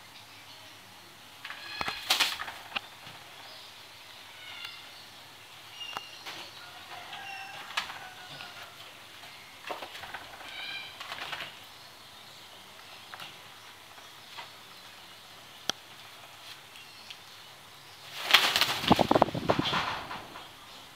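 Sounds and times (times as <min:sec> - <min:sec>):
bird wings flapping: 0:01.5 - 0:03.3, 0:07.5 - 0:08.6, 0:09.6 - 0:11.7, 0:18.1 - 0:20.6.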